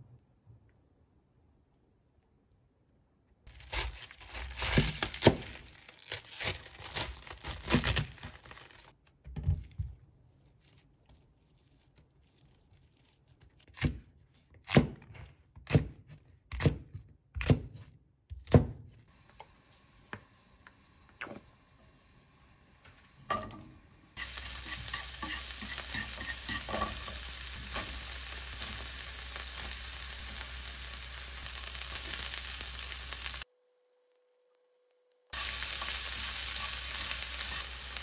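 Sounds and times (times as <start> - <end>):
tearing and crinkling: 3.5 - 9.0, 10.4 - 13.7.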